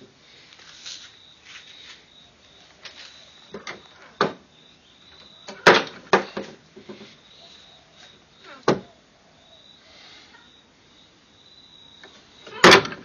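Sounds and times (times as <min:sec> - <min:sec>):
wooden knocks and clacks: 0:05.5 - 0:07.1.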